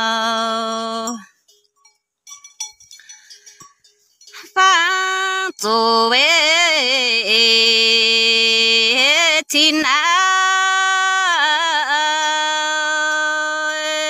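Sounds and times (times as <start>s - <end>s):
woman singing with vibrato: 0.0s - 1.3s, 4.4s - 14.0s.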